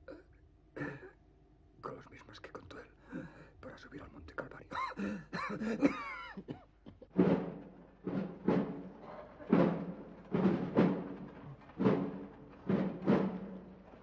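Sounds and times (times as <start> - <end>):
deep drum beating: 7.1 - 14.0.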